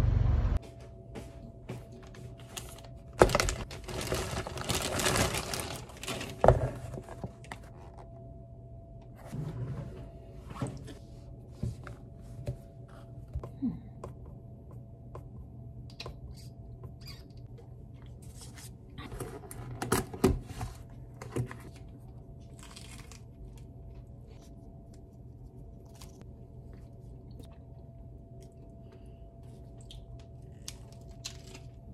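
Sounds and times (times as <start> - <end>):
low room hum: 0.0 - 31.9
paper crinkling and rustling: 2.0 - 8.1.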